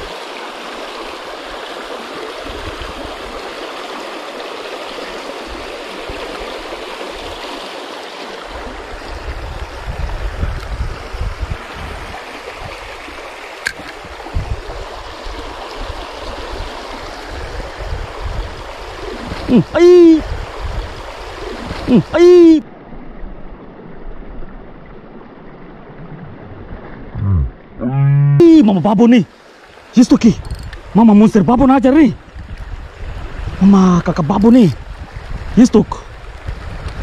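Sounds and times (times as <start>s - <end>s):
river current rushing: 0.0s - 37.0s.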